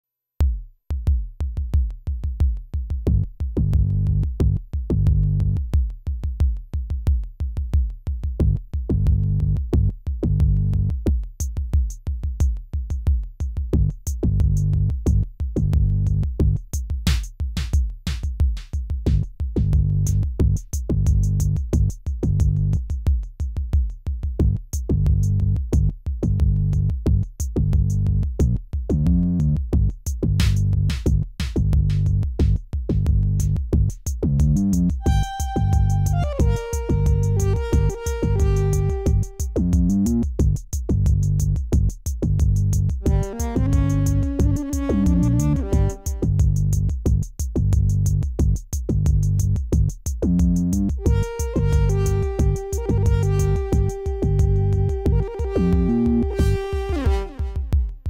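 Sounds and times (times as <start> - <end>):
electronic music with heavy bass: 34.4 - 40.4, 42.5 - 47.1, 50.4 - 57.6.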